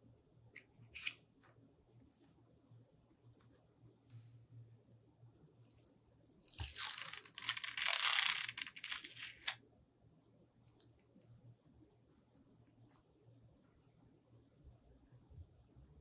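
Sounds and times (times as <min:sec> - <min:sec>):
plastic packaging tearing: 0:06.2 - 0:09.6.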